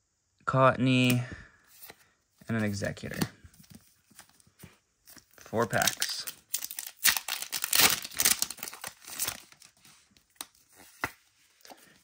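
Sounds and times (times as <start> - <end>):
foil wrapper crinkling: 5.2 - 11.0.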